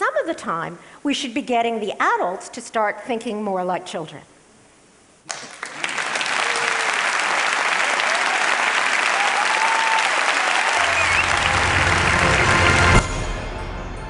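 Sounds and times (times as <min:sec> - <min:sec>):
audience applauding: 0:05.3 - 0:13.1.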